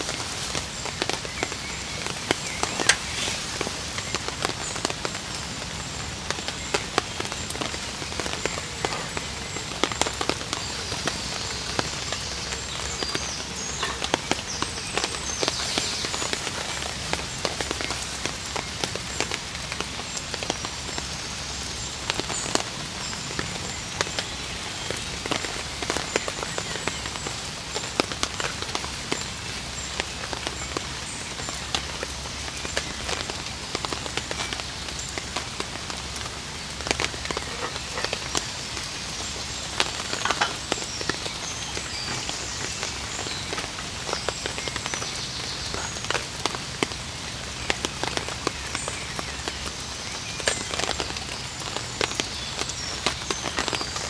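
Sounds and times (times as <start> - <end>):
food sizzling in a frying pan: 0.0 - 5.6, 33.9 - 46.8.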